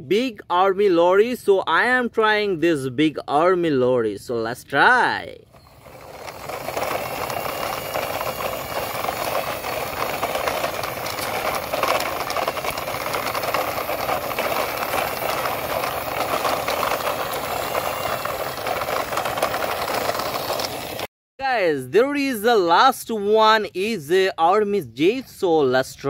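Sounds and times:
toy truck rolling over gritty dirt: 5.5s - 21.1s.

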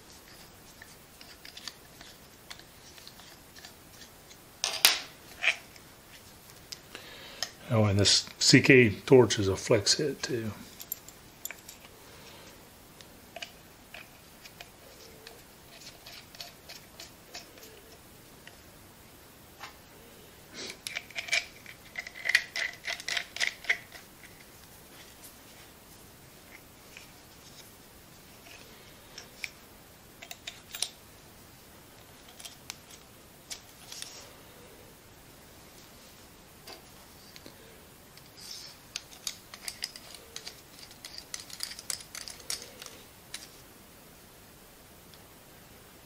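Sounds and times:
small metal parts clicking: 13.4s - 18.0s, 20.8s - 24.5s, 30.2s - 31.0s, 38.9s - 43.6s
torch parts clicking together: 38.9s - 43.5s.

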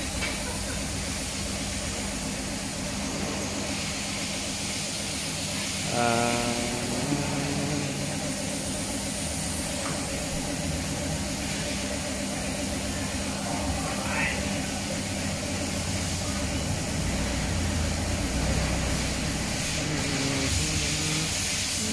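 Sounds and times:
steady low hum: 0.0s - 21.9s
spray gun hissing: 5.4s - 9.7s, 19.0s - 21.9s
short pitched hum: 5.8s - 8.6s, 19.5s - 21.9s.

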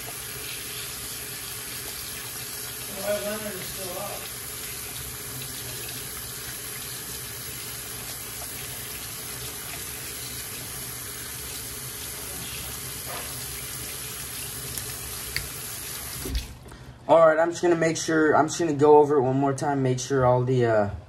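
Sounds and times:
faucet running into metal sink: 0.0s - 16.6s.

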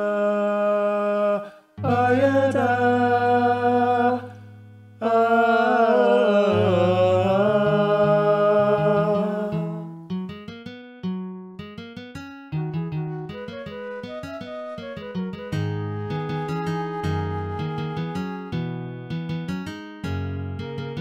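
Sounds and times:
voices singing in harmony: 0.0s - 4.4s, 5.0s - 9.9s
plucked acoustic guitar: 1.8s - 21.0s.

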